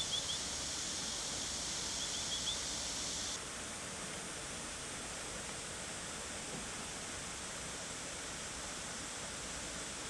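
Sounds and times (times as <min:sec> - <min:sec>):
steady high hiss: 0:00.0 - 0:03.7.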